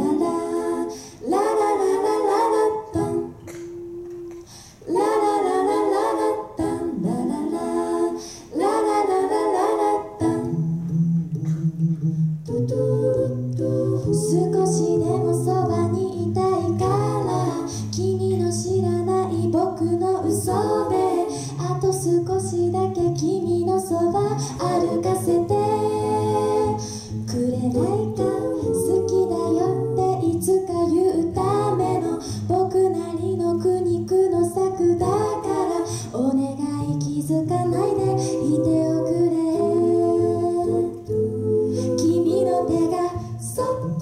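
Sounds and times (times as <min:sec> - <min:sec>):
sung harmonies: 0:00.0 - 0:44.0
vocal percussion: 0:00.0 - 0:44.0
sung bass line: 0:10.2 - 0:44.0
woman singing lead: 0:12.5 - 0:44.0.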